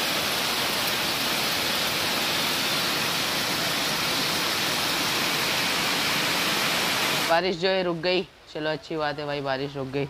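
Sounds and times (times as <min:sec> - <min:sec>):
heavy rain pouring: 0:00.0 - 0:10.0.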